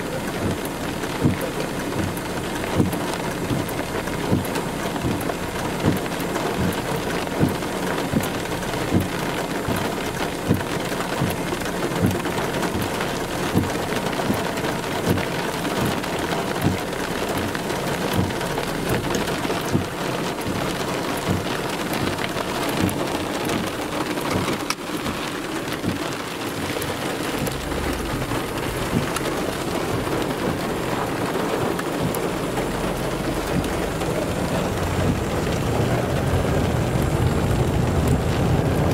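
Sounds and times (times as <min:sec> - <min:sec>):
rain hiss: 0:00.0 - 0:38.9
low rumble: 0:27.3 - 0:38.9.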